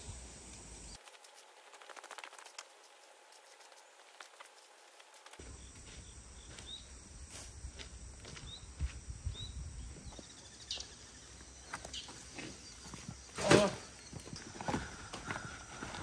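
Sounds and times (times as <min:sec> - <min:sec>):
wind rumble on microphone: 0:08.4 - 0:10.2
raking knocks and rustles: 0:11.7 - 0:16.0.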